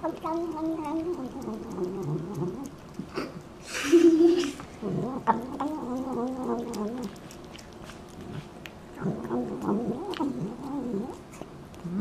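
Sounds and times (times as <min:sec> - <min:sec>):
cat growly murmurs: 0:00.0 - 0:03.2, 0:04.4 - 0:07.2, 0:09.0 - 0:12.0
cat chewing wet food: 0:00.0 - 0:03.7, 0:04.3 - 0:12.0.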